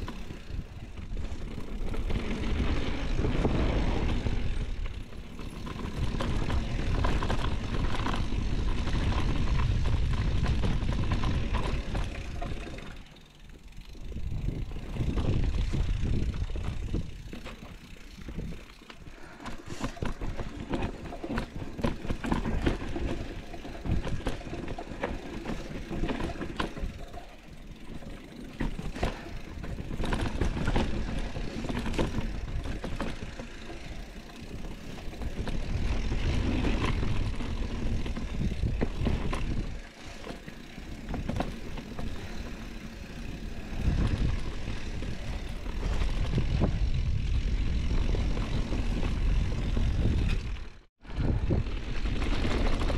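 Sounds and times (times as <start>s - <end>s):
wind rumbling on microphone: 0.0s - 12.7s, 14.0s - 17.4s, 28.8s - 39.9s, 43.1s - 52.9s
bike rattles and knocks: 0.0s - 52.9s
bike tyre noise on dirt: 0.0s - 52.9s.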